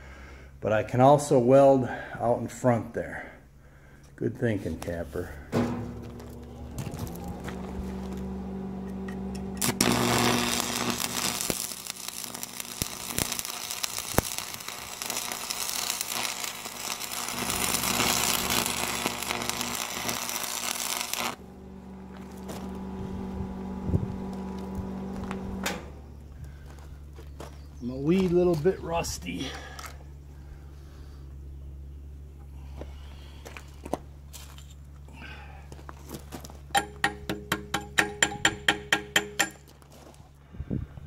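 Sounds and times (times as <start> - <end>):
steady low hum: 1.8 - 41.0
welding arc crackling and hissing: 5.6 - 25.9.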